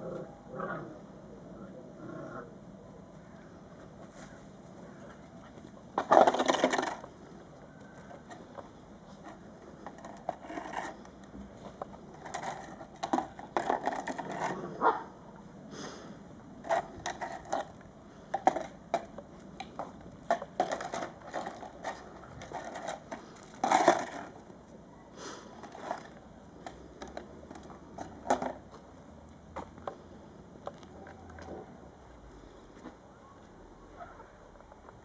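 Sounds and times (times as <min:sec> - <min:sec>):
cardboard crackling and scraping on paving: 0:03.8 - 0:15.0, 0:16.6 - 0:24.7, 0:25.4 - 0:28.8.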